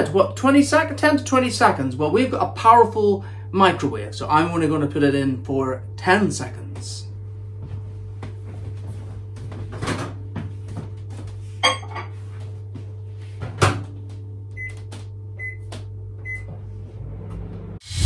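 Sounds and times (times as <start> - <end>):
steady low hum: 0.0 - 18.0
keypad beeps: 15.4 - 16.5.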